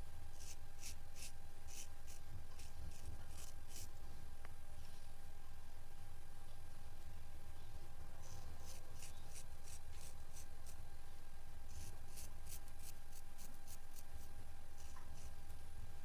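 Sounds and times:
steady low hum: 0.0s - 16.0s
razor scraping scalp: 0.4s - 3.9s, 8.2s - 10.8s, 11.7s - 15.4s.

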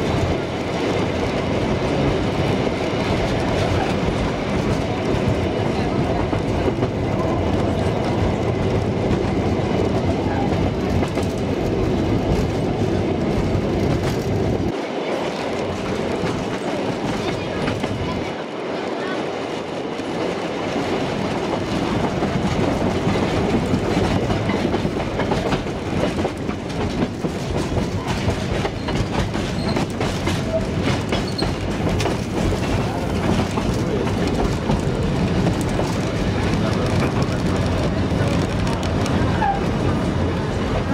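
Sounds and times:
train rumble and rattle: 0.0s - 40.9s
wheels clicking over rail joints: 20.1s - 40.9s.

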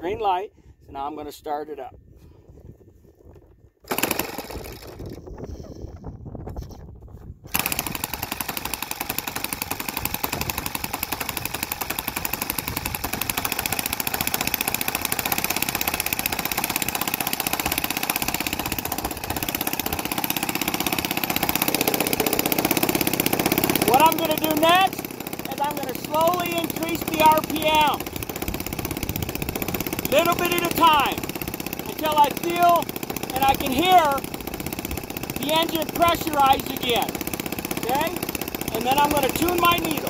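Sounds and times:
electric starter spinning: 3.8s - 5.7s, 7.5s - 40.0s
model engine running: 3.9s - 5.7s, 7.5s - 40.0s.

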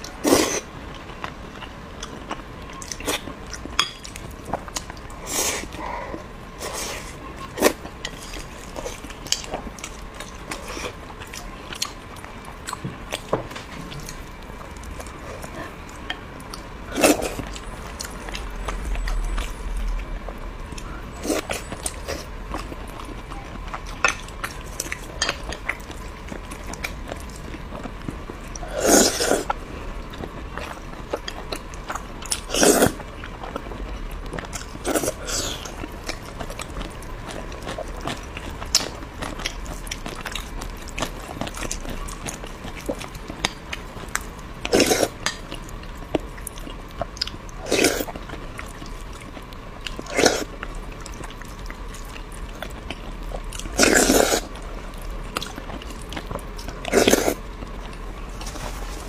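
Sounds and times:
person chewing and biting: 34.3s - 58.6s.

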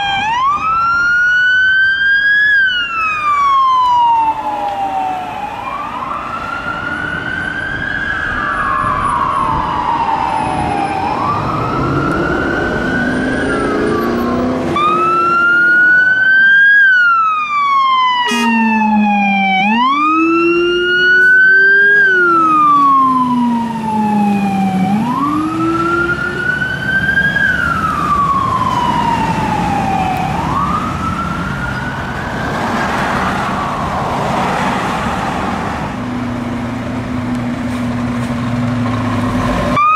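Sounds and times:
fire truck wail siren: 0.0s - 39.9s
deep rising and falling tone: 7.2s - 16.6s, 18.3s - 31.3s.

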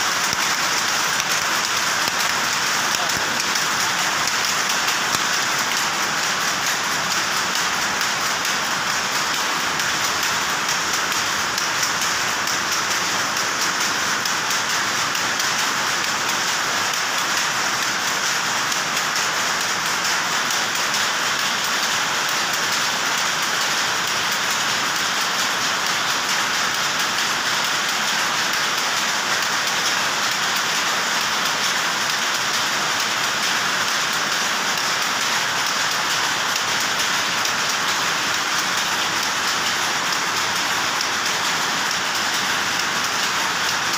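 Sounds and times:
power looms clattering: 0.0s - 43.9s.

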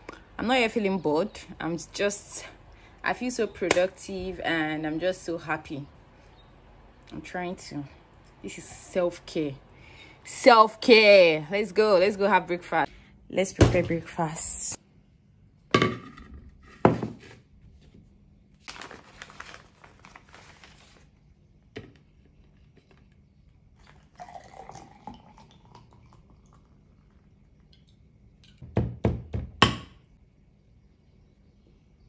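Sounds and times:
tableware knocking on table: 15.7s - 16.2s
rustling: 18.6s - 21.2s
drink pouring into glass: 23.8s - 27.9s.

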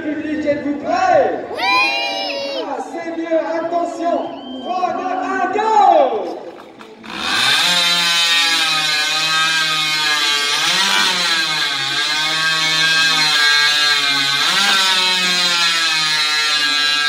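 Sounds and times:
chainsaws cutting logs: 6.4s - 17.0s.

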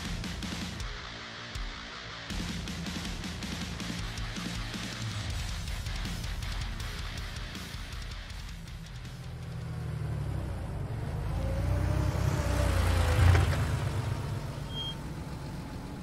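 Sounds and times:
truck engine rumbling: 8.3s - 16.0s.

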